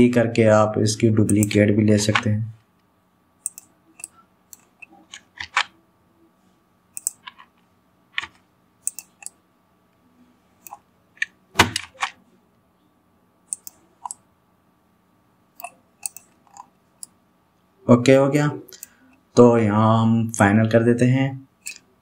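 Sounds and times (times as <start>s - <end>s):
faint electrical hum: 0.0s - 22.0s
mouse clicks: 1.3s - 2.3s, 3.4s - 5.7s, 7.0s - 7.4s, 8.2s - 9.4s, 13.5s - 14.2s, 15.6s - 17.2s.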